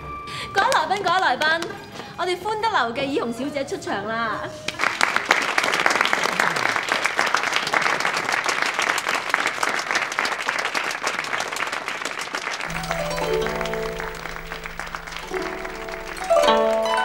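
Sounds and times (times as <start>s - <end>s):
crowd applauding: 4.7s - 17.0s
music with plucked strings: 12.7s - 17.0s.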